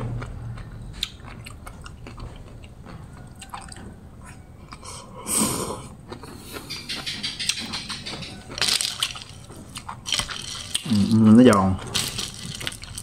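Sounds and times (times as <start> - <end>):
mouth sound: 4.7 - 7.6
crisp chewing pops and clicks: 6.1 - 13.0.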